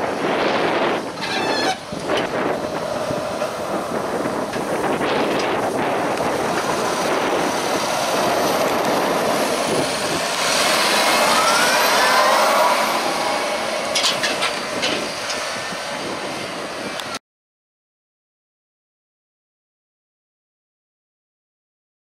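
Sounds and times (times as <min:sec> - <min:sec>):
tractor engine working under load: 0:00.0 - 0:17.2
rising whine: 0:01.8 - 0:17.2.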